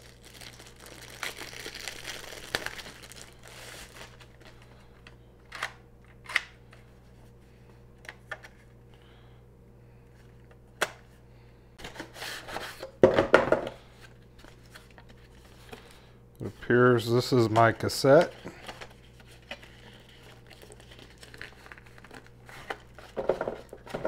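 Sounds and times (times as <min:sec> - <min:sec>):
plastic bag crinkling: 0:00.0 - 0:04.8, 0:18.5 - 0:23.9.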